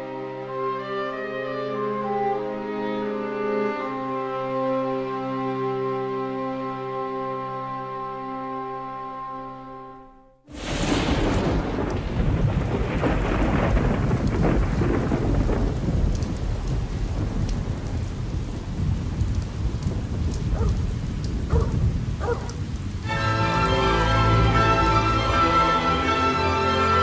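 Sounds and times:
music: 0:00.0 - 0:10.7, 0:23.0 - 0:27.0
thunder rumbling: 0:10.5 - 0:23.3
steady rain: 0:10.5 - 0:27.0.

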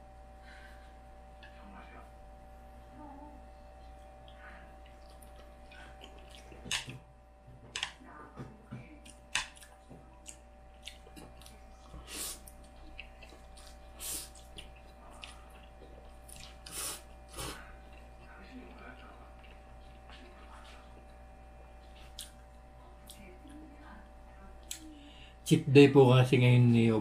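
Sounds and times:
wet chewing with mouth clicks: 0:03.9 - 0:07.1, 0:08.9 - 0:23.6.

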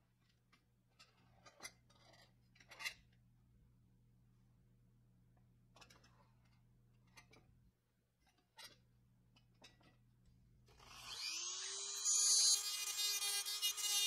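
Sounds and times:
rotary tool whining: 0:10.8 - 0:14.0.

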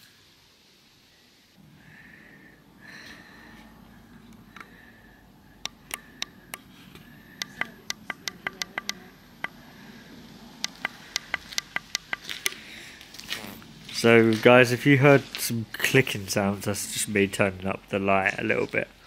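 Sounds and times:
brightness control clicking: 0:05.6 - 0:09.6, 0:10.6 - 0:12.6.

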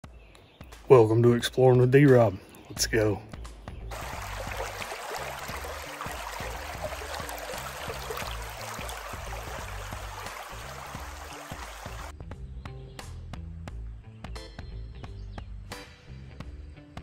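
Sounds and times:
background music: 0:00.6 - 0:17.0
creek splashing over stones: 0:03.9 - 0:12.1.

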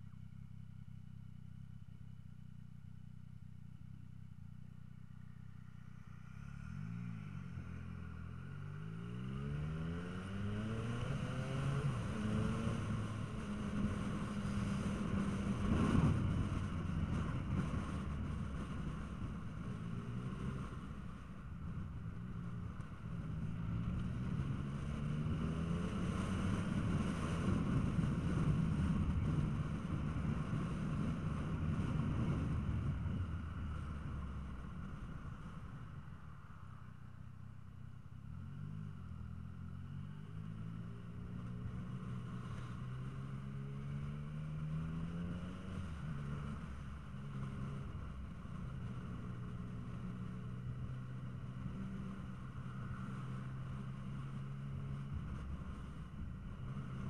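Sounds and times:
motorcycle engine accelerating: 0:00.0 - 0:36.8, 0:38.0 - 0:57.0
wind noise: 0:10.8 - 0:36.1.

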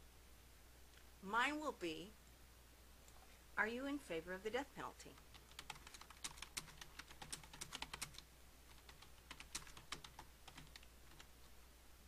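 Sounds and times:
faint keyboard typing: 0:05.0 - 0:11.5.

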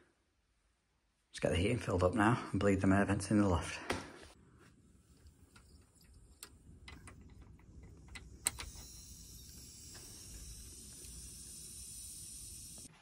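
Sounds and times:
air hissing from vent: 0:04.8 - 0:12.9
bleed key clicking and tapping: 0:05.4 - 0:08.9.

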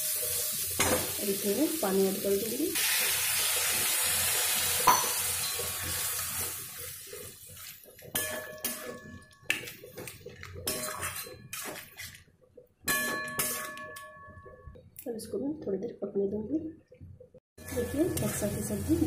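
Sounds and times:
water hissing in hot pan: 0:00.0 - 0:07.7
metal spatula scraping pan: 0:10.6 - 0:12.2, 0:12.9 - 0:13.8, 0:17.6 - 0:18.9.

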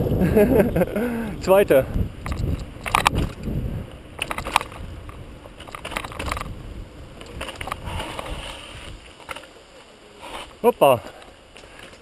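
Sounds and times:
wind buffeting microphone: 0:00.0 - 0:09.2
bike rattles and clicks: 0:00.0 - 0:09.6, 0:10.2 - 0:12.0.

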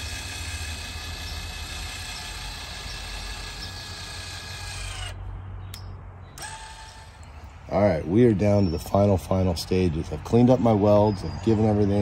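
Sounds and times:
linear actuator motor humming: 0:00.0 - 0:05.2, 0:06.4 - 0:07.4.

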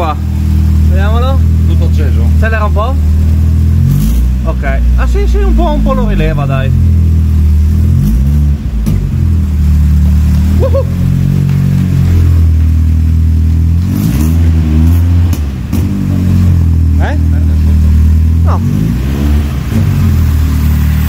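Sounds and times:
car engine idling and revving: 0:00.0 - 0:21.0.

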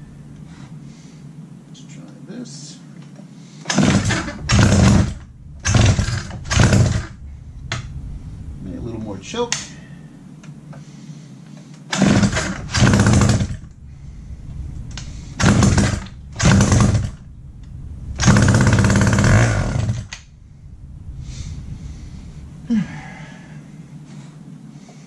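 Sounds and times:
saw engine starting and dying: 0:03.7 - 0:07.2, 0:11.9 - 0:13.7, 0:15.4 - 0:17.3, 0:18.2 - 0:20.2.

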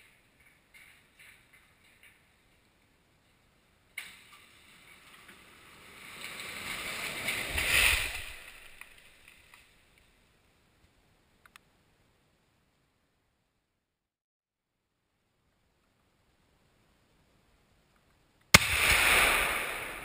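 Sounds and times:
small clicks: 0:11.4 - 0:11.7.

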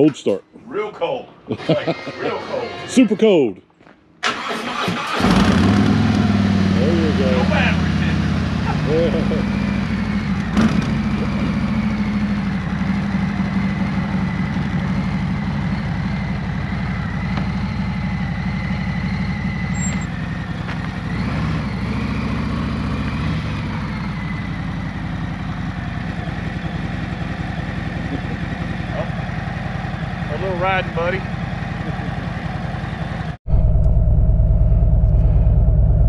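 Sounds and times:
motorcycle engine idling: 0:06.4 - 0:21.2, 0:22.8 - 0:36.0.

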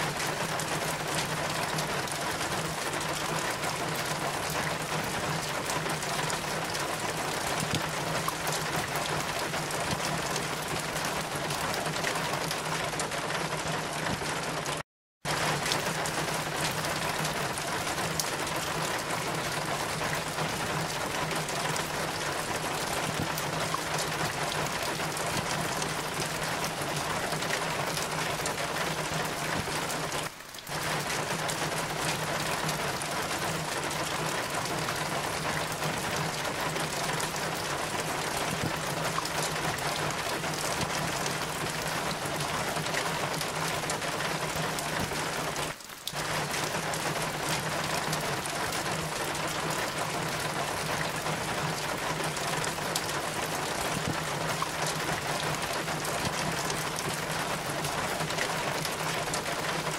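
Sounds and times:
rain pouring: 0:00.0 - 0:59.9.

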